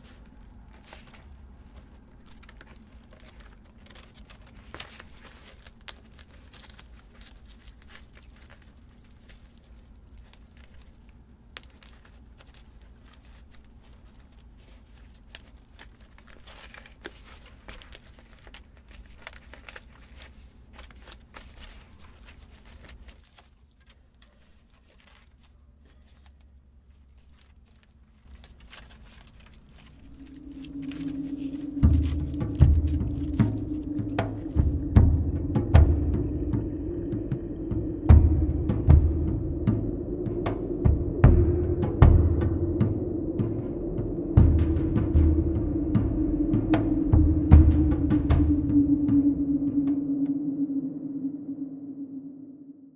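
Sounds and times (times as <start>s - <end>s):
dry leaves crinkling: 0.0s - 37.2s
music with low drum: 30.2s - 50.5s.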